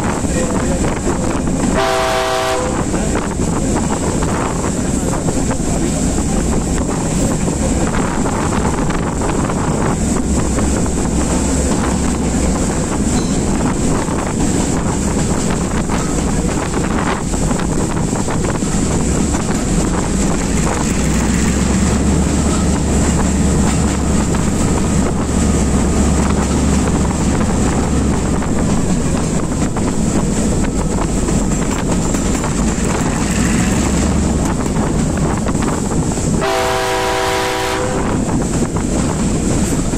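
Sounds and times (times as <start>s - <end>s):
locomotive engine rumble: 0.0s - 39.9s
wind buffeting microphone: 0.0s - 39.9s.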